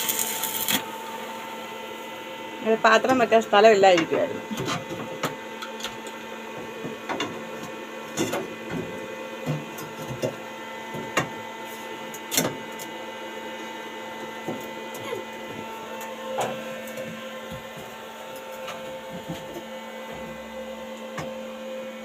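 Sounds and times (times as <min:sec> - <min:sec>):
welding arc crackling: 0:00.0 - 0:01.4
welding machine hum: 0:00.0 - 0:22.0.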